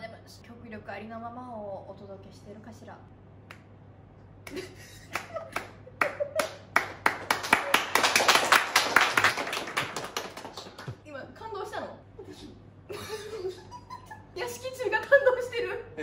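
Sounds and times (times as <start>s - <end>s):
people applauding: 5.1s - 11.0s.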